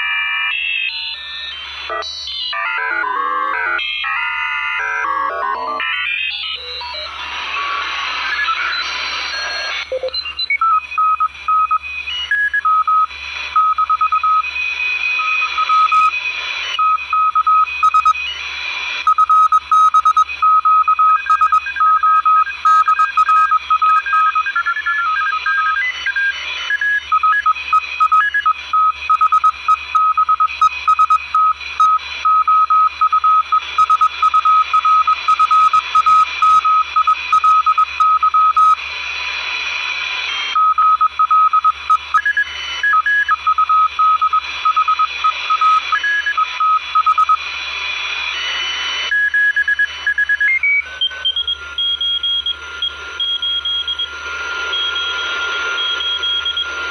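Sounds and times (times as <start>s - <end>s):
morse code beeps: 0.0s - 7.2s, 8.3s - 16.2s, 16.8s - 18.4s, 19.0s - 38.8s, 40.5s - 47.4s, 49.1s - 56.9s
radio hiss: 7.0s - 10.1s, 33.0s - 40.6s, 43.9s - 49.1s, 50.5s - 51.8s.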